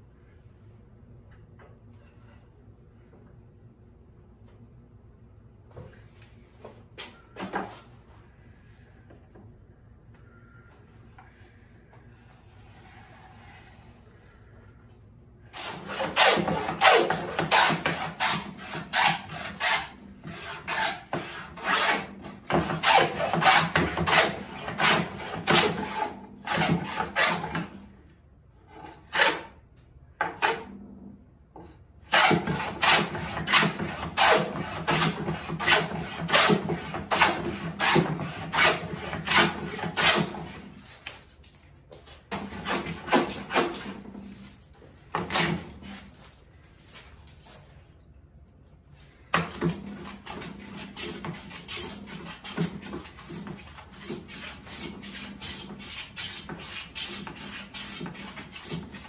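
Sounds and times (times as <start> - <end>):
hand plane shaving wood: 15.6 - 27.7, 32.1 - 41.2, 49.4 - 59.0.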